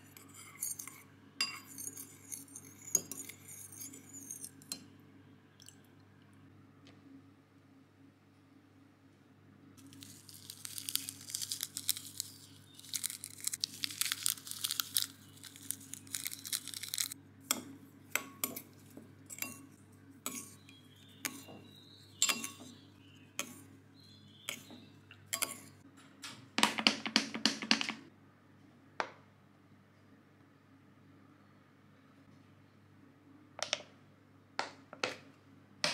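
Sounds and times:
spoon clinking in ceramic bowl: 0.2s - 4.9s, 19.3s - 21.5s, 22.2s - 22.8s, 25.3s - 25.8s
plastic sachets crinkling and tearing: 9.8s - 17.2s
plastic bottle crackling: 9.9s - 17.2s.

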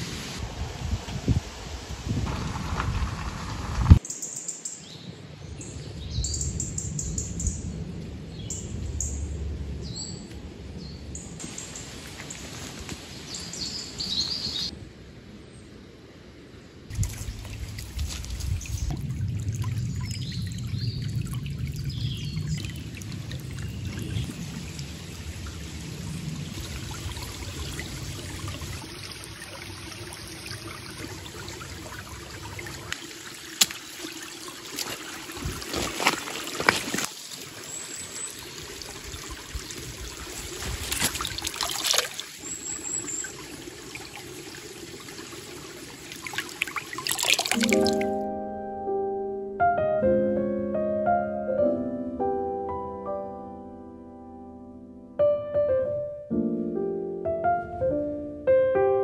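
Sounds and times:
stream trickling over stones: 11.4s - 14.7s, 16.9s - 48.2s.

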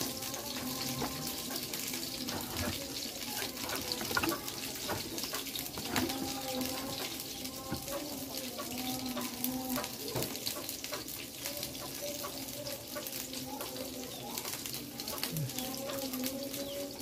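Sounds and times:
vegetables sizzling in a grill pan: 0.0s - 17.0s.

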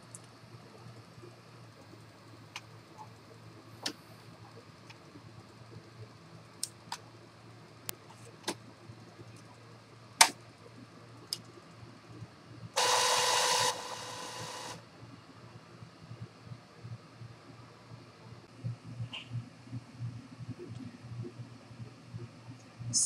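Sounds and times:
printer motor whirring: 12.8s - 14.8s.

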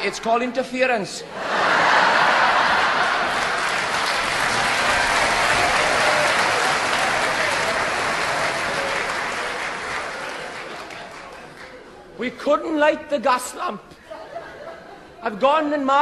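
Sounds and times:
audience applauding: 1.6s - 12.0s.

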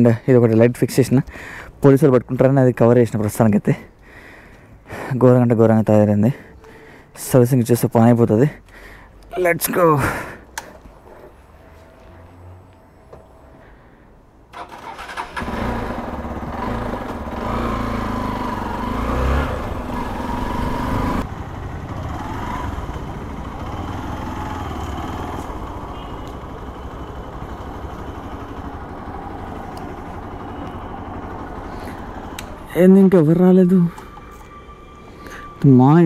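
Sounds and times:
engine and road noise: 0.0s - 36.0s
motorcycle engine starting and revving: 14.5s - 34.2s.

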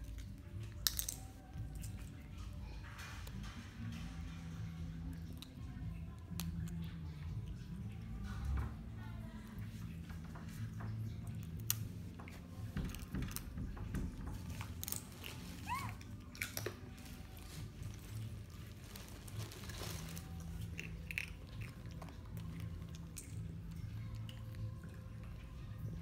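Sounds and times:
low steady hum: 0.0s - 26.0s
monkey chewing crunchy food: 14.4s - 25.6s.

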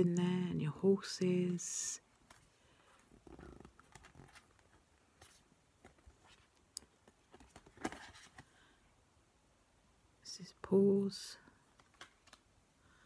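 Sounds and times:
cards rustling and clicking: 2.2s - 8.6s, 11.7s - 12.5s.

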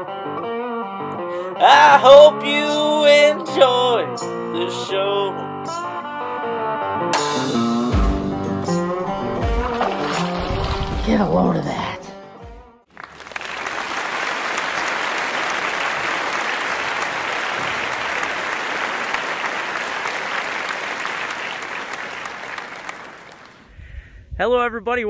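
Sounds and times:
crowd applauding: 12.9s - 23.7s.

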